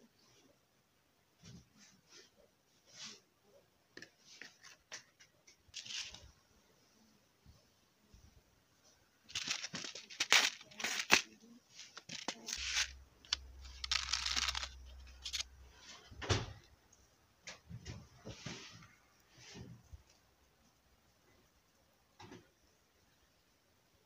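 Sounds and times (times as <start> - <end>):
seeds rustling in packet: 5.7 - 6.3, 9.3 - 16.1
paper packet crinkling and ripping: 5.8 - 6.2, 9.3 - 15.5.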